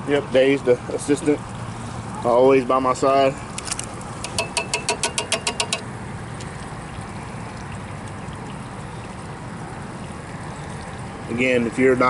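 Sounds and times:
metallic taps on pot rim: 0:04.2 - 0:05.9.

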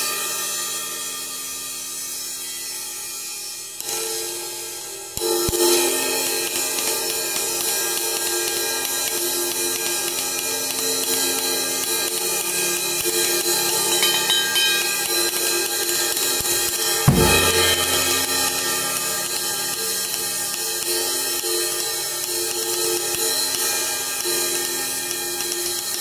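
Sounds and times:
drumstick on crash cymbal: 0:03.4 - 0:26.0
low drum hit: 0:17.1 - 0:19.0.

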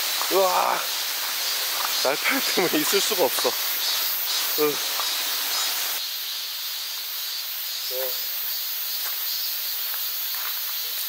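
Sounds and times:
cicadas singing: 0:00.0 - 0:11.0
person murmuring: 0:00.3 - 0:00.9.

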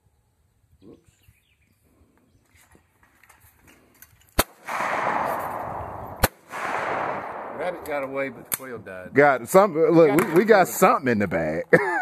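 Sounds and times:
shotgun shots: 0:04.4 - 0:09.2.

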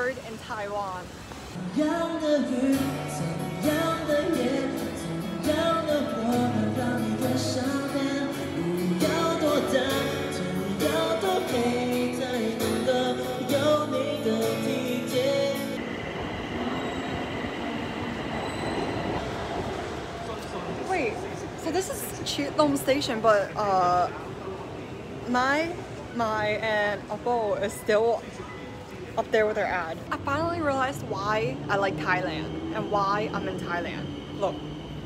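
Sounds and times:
train station platform noise: 0:00.0 - 0:35.0
pop song with singing: 0:01.6 - 0:15.9.

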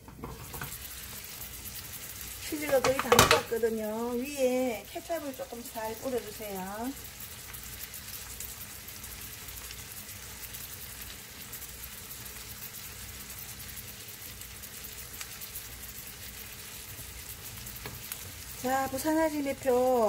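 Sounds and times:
food sizzling in a frying pan: 0:00.0 - 0:20.0.

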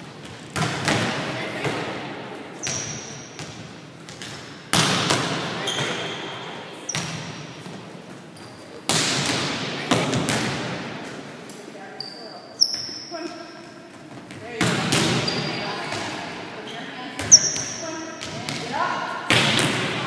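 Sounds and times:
volleyballs smacking in gym: 0:00.0 - 0:06.2, 0:08.8 - 0:11.2, 0:13.9 - 0:16.4, 0:17.2 - 0:20.0
shoe squeaks: 0:02.6 - 0:03.4, 0:05.6 - 0:08.9, 0:11.9 - 0:13.9, 0:15.2 - 0:15.8, 0:16.6 - 0:18.2.

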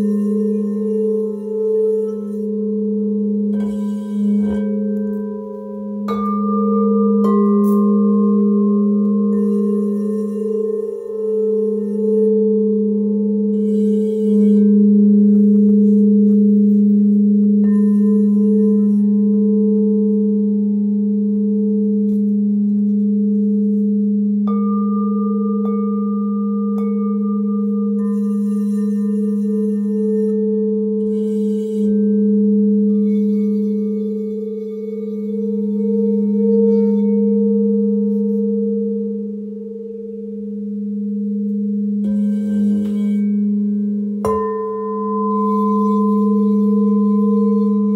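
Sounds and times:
crystal singing bowls ringing: 0:00.0 - 0:47.9
singing bowl struck: 0:00.0 - 0:47.9.

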